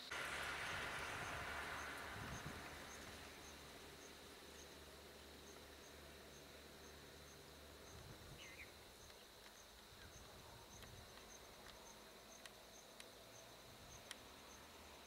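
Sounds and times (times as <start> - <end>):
bird chirp: 0.0 - 14.8
insects buzzing: 0.0 - 15.0
soft insect pulse: 0.0 - 15.0
faint clicks: 7.9 - 14.6.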